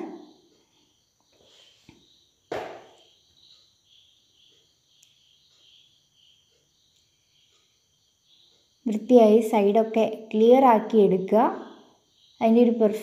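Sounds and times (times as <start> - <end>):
crickets chirping: 0.0 - 13.0
sharp knock: 2.5 - 3.0
faint ticks: 3.0 - 9.0.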